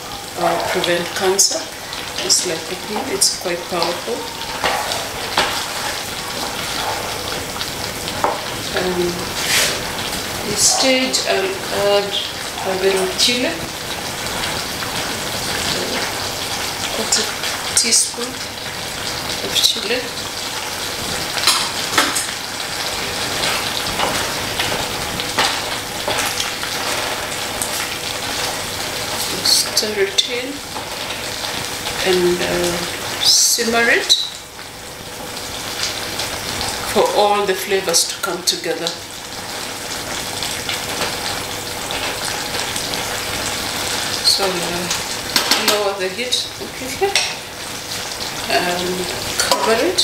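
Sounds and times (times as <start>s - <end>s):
curry sizzling in a pot: 0.0s - 50.0s
wooden spoon scraping a pot: 9.3s - 9.8s.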